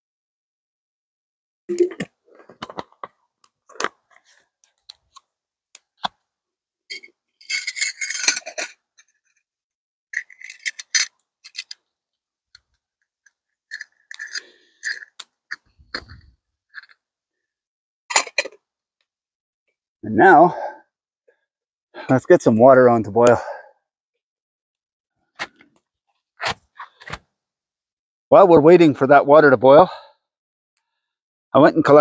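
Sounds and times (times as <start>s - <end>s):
clicks and metal clinks: 6.9s - 8.8s.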